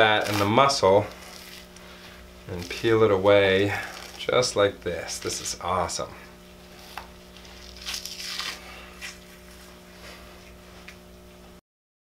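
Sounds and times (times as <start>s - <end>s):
wet tearing of fat: 0.1s - 1.9s, 3.8s - 4.3s, 6.9s - 9.2s.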